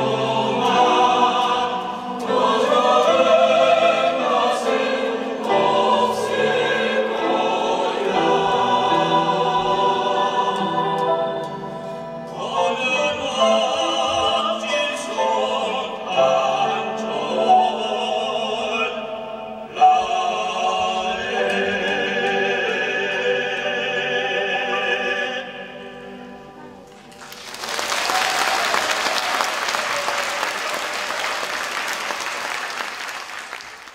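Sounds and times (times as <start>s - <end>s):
mixed choir singing: 0.0s - 26.8s
audience applause: 27.1s - 33.9s.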